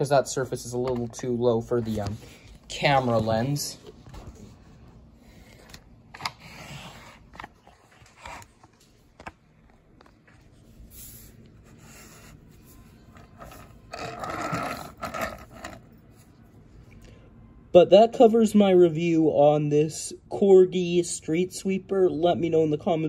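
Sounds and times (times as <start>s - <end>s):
scraping rub: 10.9s - 15.8s.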